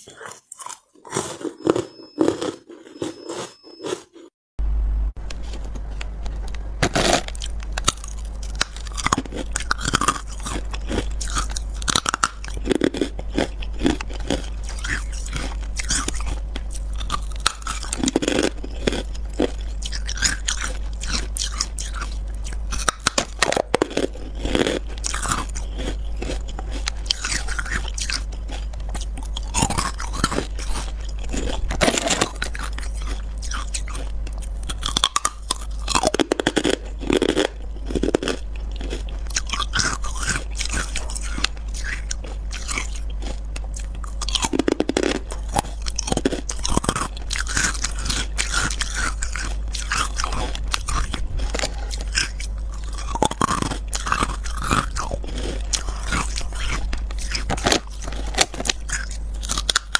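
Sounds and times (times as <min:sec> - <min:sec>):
ice being chewed crunching: 0:00.0 - 0:04.3, 0:06.4 - 0:59.9.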